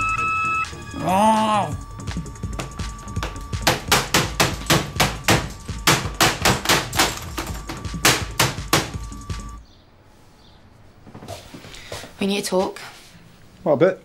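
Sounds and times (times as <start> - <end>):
thin steady beep: 0.0 - 1.1.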